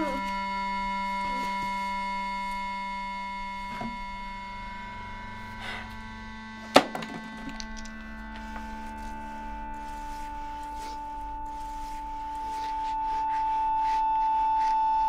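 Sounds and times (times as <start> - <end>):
held electronic tones drone: 0.0 - 6.8
bottle clattering on concrete: 6.7 - 8.7.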